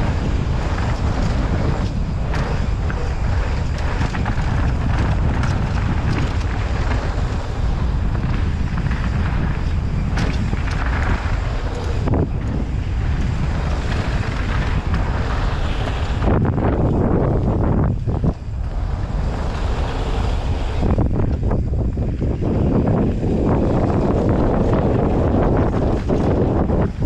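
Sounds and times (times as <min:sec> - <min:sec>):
bike rattling over rocks: 0:00.0 - 0:27.0
tyres rumbling on dirt: 0:00.0 - 0:27.0
wind buffeting microphone: 0:00.0 - 0:27.0.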